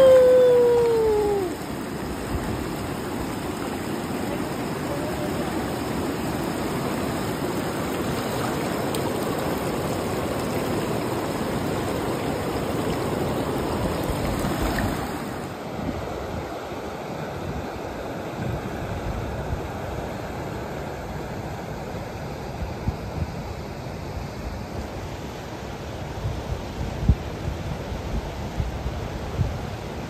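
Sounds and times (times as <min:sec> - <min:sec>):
river water rushing: 0:00.0 - 0:18.9.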